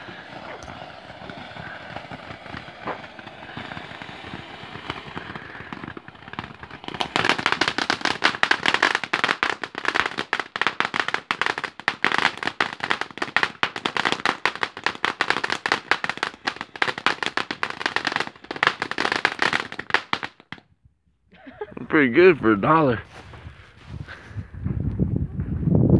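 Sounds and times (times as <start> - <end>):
firework fountain hissing sparks: 0.0 - 20.6
firework rapid crackling: 0.0 - 20.6.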